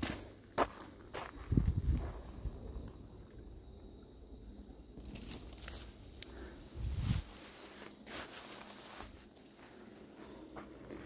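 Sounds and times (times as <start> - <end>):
footsteps crunching: 0.0 - 2.3, 7.1 - 11.0
reeds rustling: 5.1 - 9.7.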